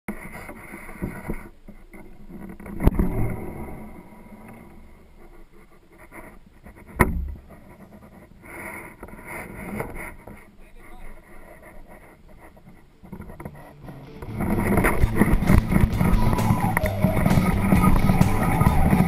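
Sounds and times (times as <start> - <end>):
sharp clacks with low thud: 14.4 - 19.0.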